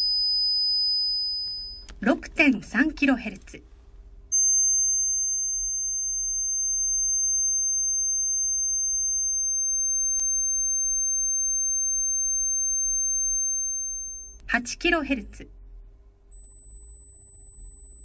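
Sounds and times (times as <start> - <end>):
high pure test tone: 0.0 - 2.1, 4.3 - 14.5, 16.3 - 18.0.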